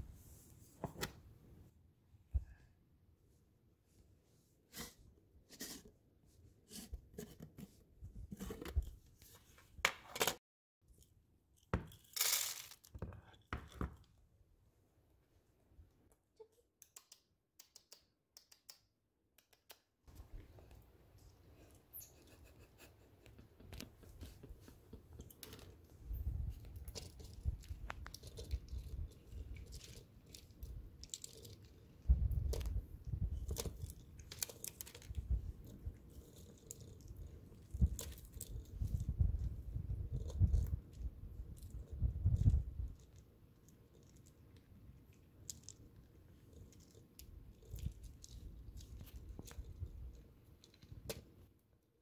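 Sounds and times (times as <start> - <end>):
chipmunk crunching seeds: 26.7 - 31.8, 45.2 - 50.2.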